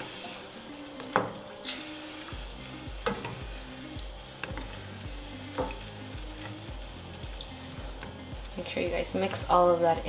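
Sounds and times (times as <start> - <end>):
faint background music: 0.0 - 10.0
spoon knocking against pan: 3.0 - 3.4, 5.5 - 5.8.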